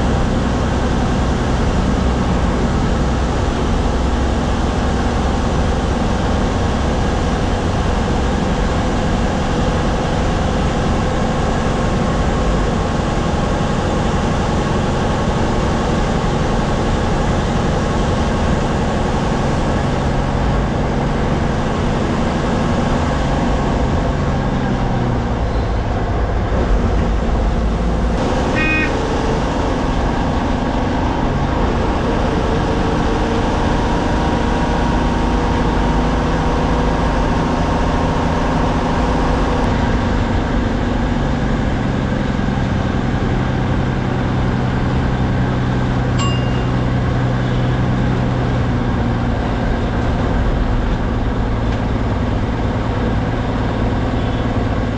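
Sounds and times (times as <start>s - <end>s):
bus engine hum: 0.0s - 54.9s
road and cabin noise: 0.0s - 54.9s
high-pitched tone: 28.5s - 29.0s, 46.2s - 47.3s.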